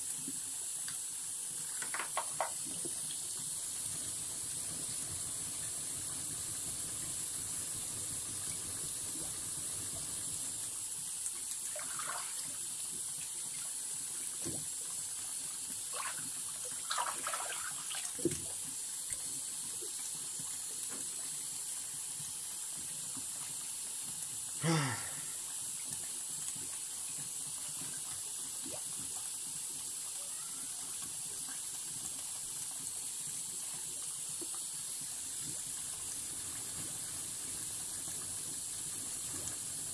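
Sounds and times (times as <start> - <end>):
tap water running into sink: 0.0 - 24.4, 30.8 - 39.9.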